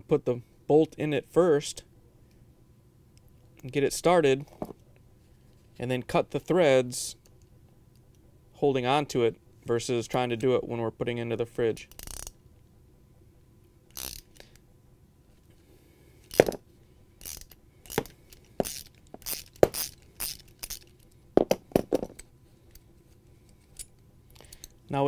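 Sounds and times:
wrench turning metal bolt: 11.9s - 12.3s, 13.9s - 14.5s, 17.2s - 21.0s.

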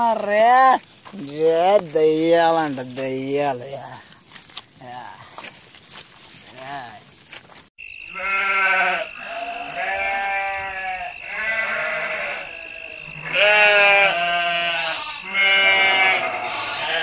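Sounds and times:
lamb bleating: 8.1s - 17.0s.

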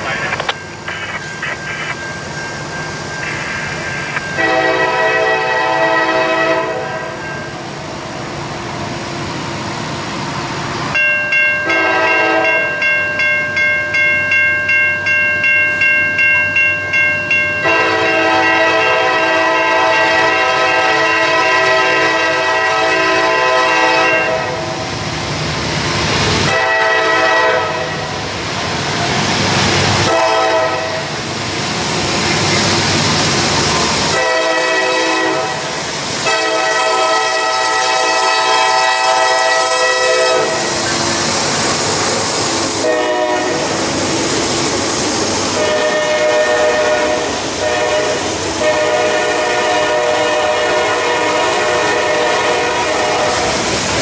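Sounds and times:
crossing signal bell ringing: 0.0s - 6.3s, 6.9s - 7.8s, 10.9s - 19.0s
locomotive air horn blasts: 3.2s - 7.2s, 11.6s - 12.7s, 17.6s - 24.8s, 26.5s - 28.1s, 30.0s - 31.1s, 34.1s - 40.7s, 42.8s - 43.7s, 45.5s - 53.5s.

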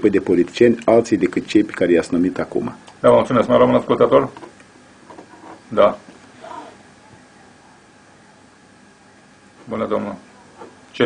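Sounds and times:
faint voice: 6.4s - 9.4s.

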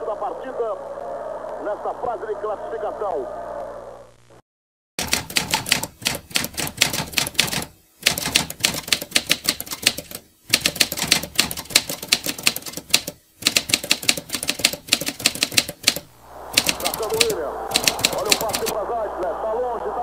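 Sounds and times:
typewriter key clacks: 5.0s - 16.0s, 16.6s - 18.7s.

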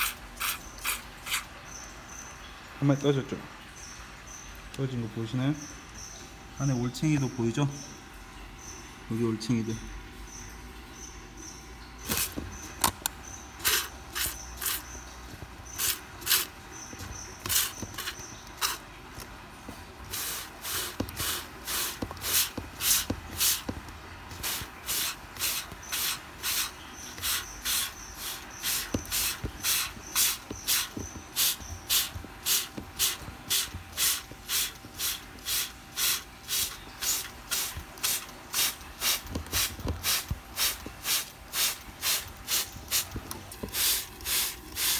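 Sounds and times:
spray bottle squirting water: 0.0s - 1.6s, 12.0s - 13.0s, 13.6s - 44.9s.

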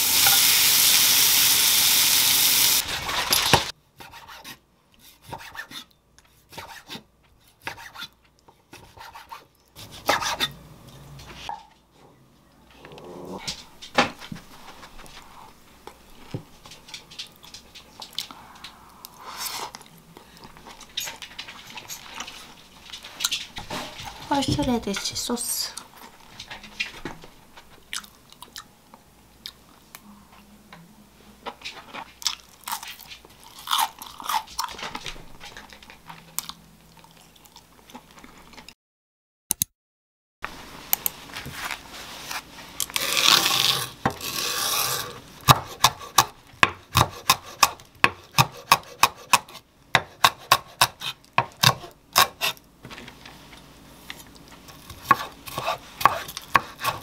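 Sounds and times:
person chewing: 27.9s - 28.7s, 32.2s - 34.8s
knife chopping on wooden board: 45.4s - 52.6s, 54.9s - 57.0s.

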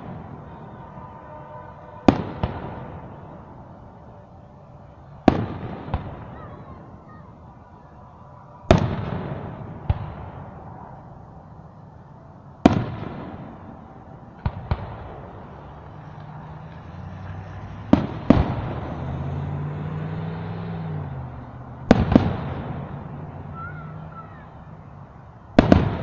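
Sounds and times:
distant firework bangs: 0.0s - 4.1s, 5.0s - 7.6s, 8.6s - 11.4s, 12.6s - 19.2s, 21.4s - 24.8s, 25.5s - 26.0s.

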